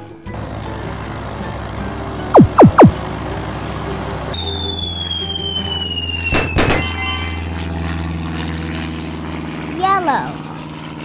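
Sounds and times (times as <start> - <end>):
cartoon whistle falling in pitch: 2.4 - 2.9
quick pops: 2.4 - 2.9.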